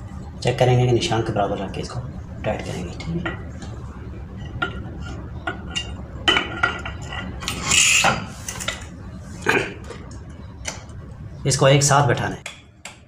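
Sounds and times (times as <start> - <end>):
metal scraping: 4.2 - 9.6.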